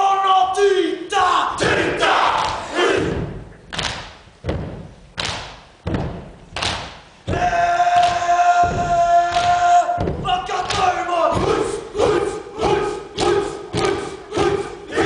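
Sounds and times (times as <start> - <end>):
group shouting in unison: 1.1 - 3.2, 7.3 - 15.0
stamping feet and body slaps: 2.4 - 14.6.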